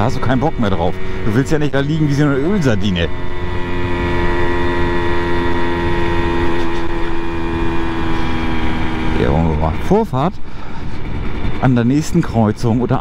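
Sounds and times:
two-stroke moped engine running: 0:00.0 - 0:13.0
wind rumbling on microphone: 0:03.1 - 0:13.0.

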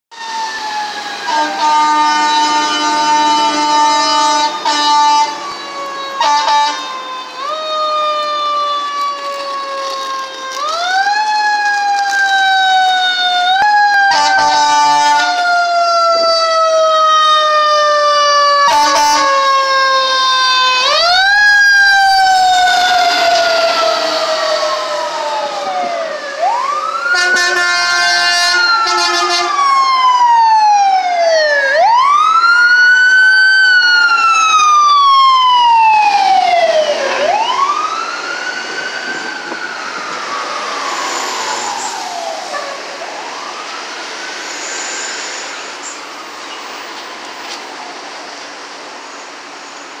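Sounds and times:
emergency sirens wailing: 0:00.1 - 0:50.0
vehicle horn: 0:01.3 - 0:05.4, 0:06.2 - 0:06.9, 0:14.1 - 0:15.3, 0:18.7 - 0:19.4, 0:27.1 - 0:29.6.

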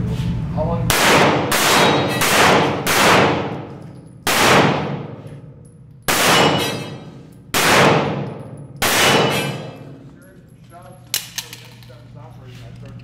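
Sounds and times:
pistol shots echoing: 0:00.9 - 0:05.2, 0:06.1 - 0:09.9
steel targets clanging: 0:05.5 - 0:07.4, 0:08.2 - 0:11.9.

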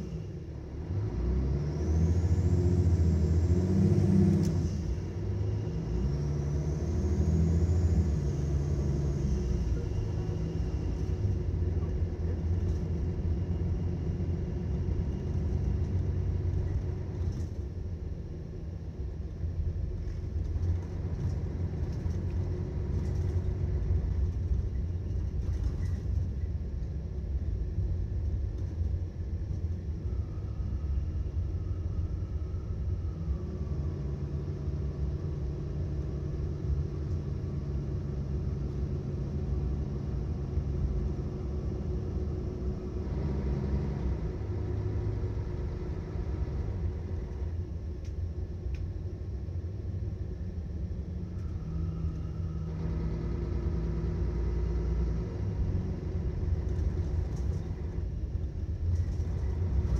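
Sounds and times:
bus engine rumbling: 0:00.0 - 0:59.9.

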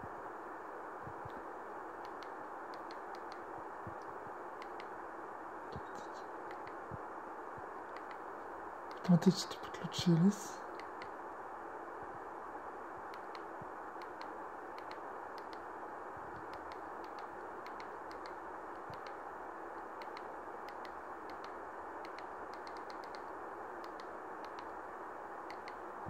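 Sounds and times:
steady background hiss: 0:00.0 - 0:26.0.

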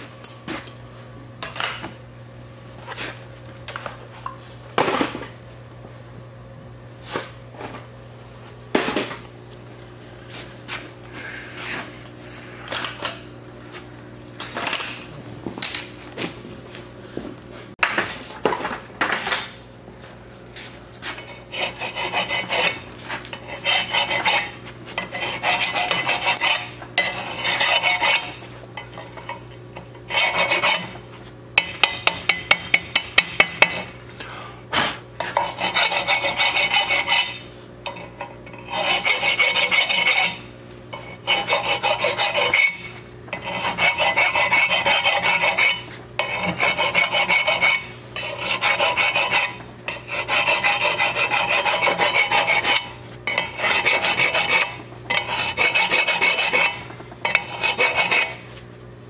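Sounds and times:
steady low hum: 0:00.0 - 0:59.0
hand tool scraping steel pipe: 0:21.0 - 0:33.8, 0:35.2 - 0:58.7.

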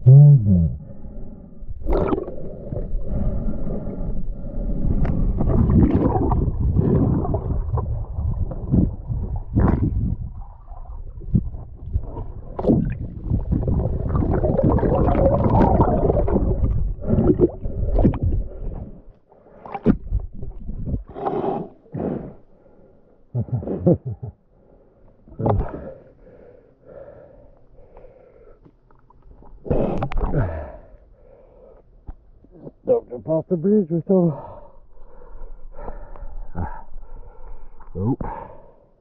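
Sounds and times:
diver breathing: 0:00.7 - 0:05.6, 0:21.0 - 0:23.8, 0:24.4 - 0:28.7, 0:29.6 - 0:32.1, 0:34.3 - 0:39.0
muffled underwater water rush: 0:01.7 - 0:22.4
underwater bubbles: 0:01.8 - 0:21.3, 0:25.3 - 0:26.0, 0:28.9 - 0:30.8.

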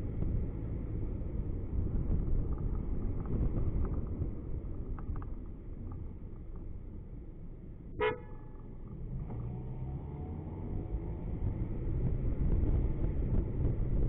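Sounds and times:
car driving rumble: 0:00.0 - 0:14.0
car horn toot: 0:07.9 - 0:08.6.

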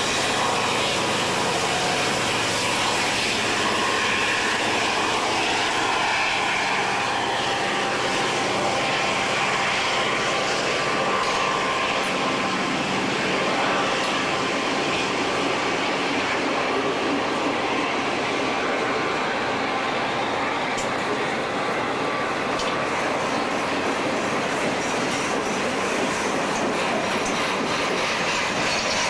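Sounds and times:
diesel locomotives engine drone: 0:00.0 - 0:29.0
freight cars rolling on track: 0:00.0 - 0:29.0.

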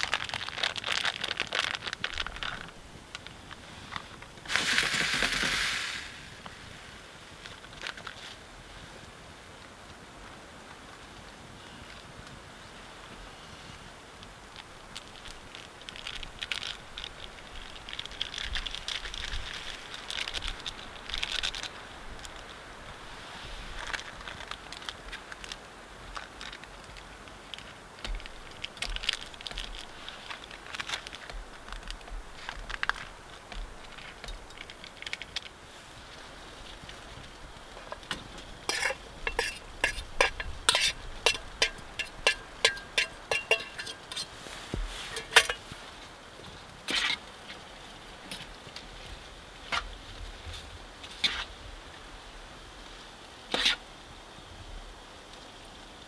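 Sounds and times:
handling and rustling: 0:00.0 - 0:08.5, 0:11.8 - 0:51.6
metal pot and lid clinking: 0:38.7 - 0:44.3, 0:45.1 - 0:45.6.

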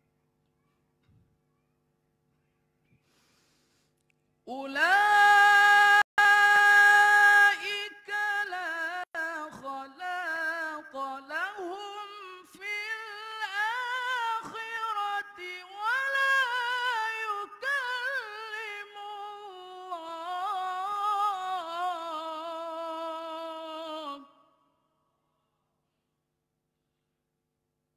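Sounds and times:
man chanting recitation: 0:04.5 - 0:24.2.

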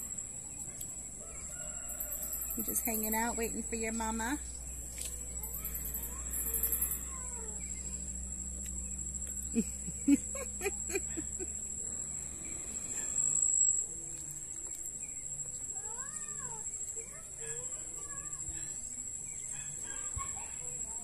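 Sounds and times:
insect trilling: 0:00.0 - 0:21.0.

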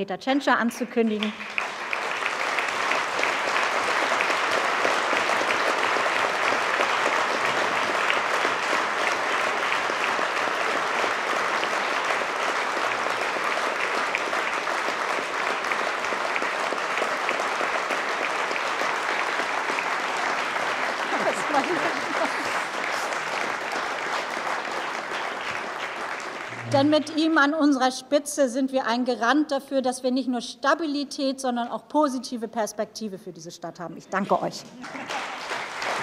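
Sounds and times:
large audience applauding: 0:01.1 - 0:27.4, 0:34.8 - 0:36.0.

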